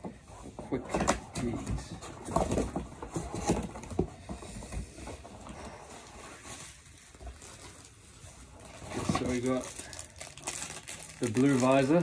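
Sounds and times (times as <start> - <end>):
cardboard knocking and scraping: 0.0 - 5.3
cardboard rustling: 0.0 - 12.0.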